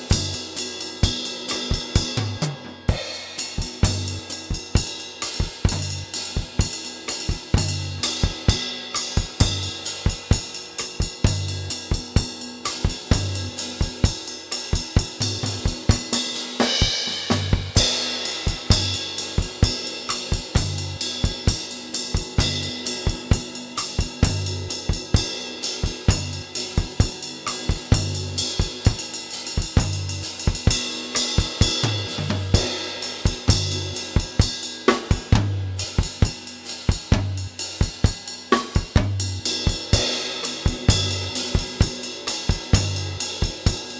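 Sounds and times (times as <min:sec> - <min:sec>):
snare drum: 0:36.9 - 0:39.8.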